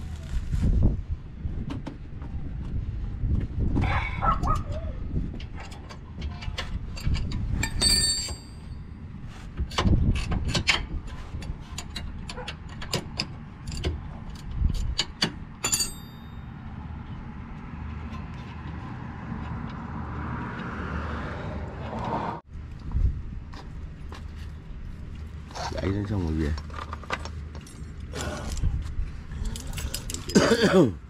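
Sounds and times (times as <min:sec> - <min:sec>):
wrench and brake parts clinking: 0:05.4 - 0:09.0, 0:09.7 - 0:16.5, 0:29.4 - 0:30.8
ringing metallic clinks: 0:07.6 - 0:08.8, 0:15.6 - 0:16.5.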